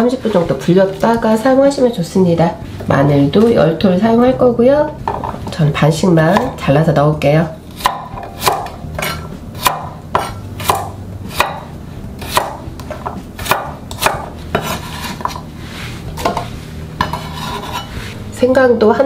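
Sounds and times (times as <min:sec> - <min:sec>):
knife cutting on cutting board: 0:12.2 - 0:12.6, 0:13.4 - 0:18.3.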